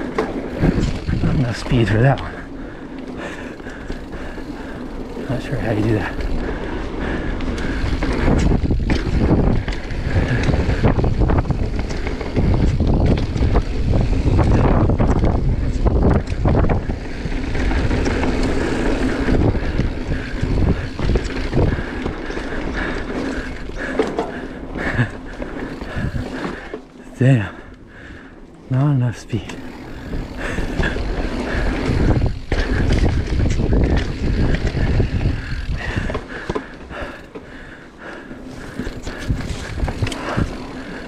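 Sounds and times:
wind buffeting microphone: 0:00.0 - 0:26.8, 0:29.3 - 0:37.8, 0:38.4 - 0:41.0
bike tyre rumble on dirt: 0:00.0 - 0:41.0
bike knocks and rattles: 0:07.4 - 0:26.8, 0:29.5 - 0:37.6, 0:38.5 - 0:41.0.

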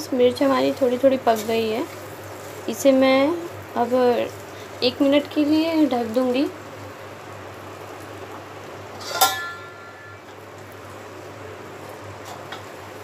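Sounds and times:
chillies sizzling in oil: 0:00.0 - 0:13.0
metal lid clanking: 0:09.0 - 0:10.4.

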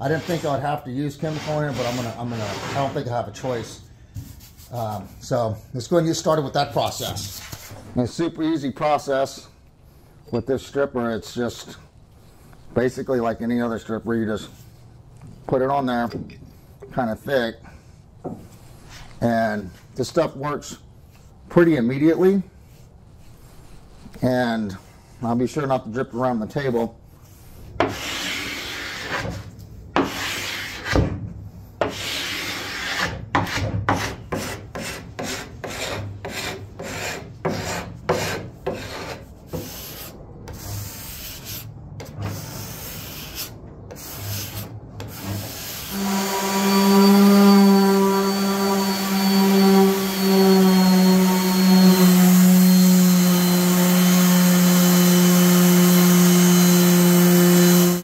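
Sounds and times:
hand scraper rasping on wood: 0:00.0 - 0:00.6, 0:01.2 - 0:03.0, 0:31.8 - 0:53.8
orbit sander humming: 0:45.2 - 0:58.0.

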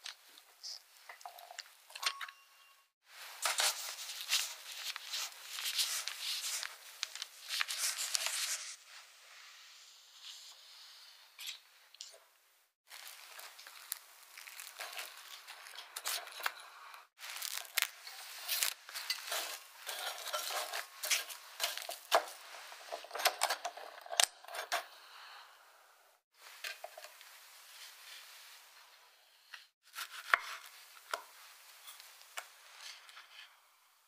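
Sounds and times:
cling film crinkling: 0:03.4 - 0:08.7, 0:12.9 - 0:16.6, 0:17.2 - 0:22.7.

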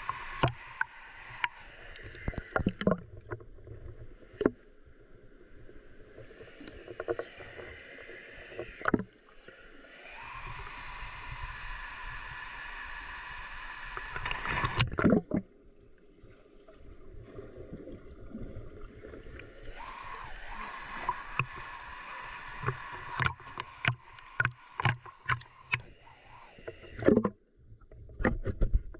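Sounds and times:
water splashing against camera: 0:00.0 - 0:04.6, 0:13.6 - 0:15.5, 0:18.4 - 0:28.9
water flowing in gorge: 0:07.2 - 0:14.9, 0:19.7 - 0:26.6.

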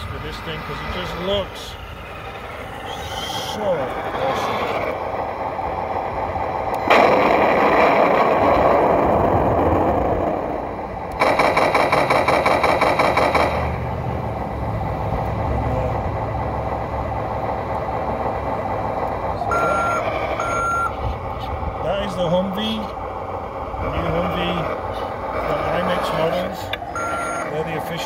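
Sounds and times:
toy engine sound effect: 0:00.0 - 0:05.2, 0:19.3 - 0:21.1, 0:23.8 - 0:28.0
machine-gun fire effect: 0:06.9 - 0:08.3, 0:11.2 - 0:13.8.

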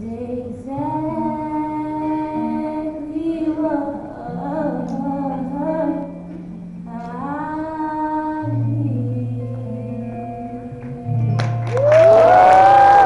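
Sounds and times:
acoustic guitar: 0:00.0 - 0:13.0
audience cheering with whoops: 0:11.6 - 0:13.0.

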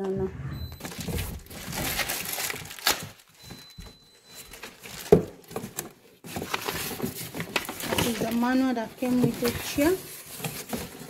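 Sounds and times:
cardboard box rustling and scraping: 0:00.8 - 0:02.6, 0:04.8 - 0:11.0.

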